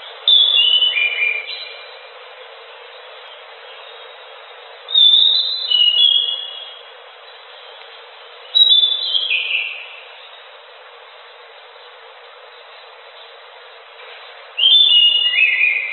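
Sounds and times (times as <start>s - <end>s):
steady hiss: 0.0s - 15.9s
bird singing high whistled notes: 0.3s - 2.0s, 3.7s - 7.8s, 8.4s - 10.5s, 14.5s - 15.9s.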